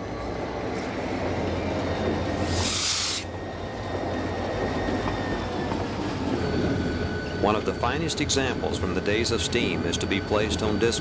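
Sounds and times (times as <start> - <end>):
diesel locomotive humming: 0.0 - 11.0
rail and wheel noise: 0.0 - 11.0
short hiss of air: 2.4 - 3.3.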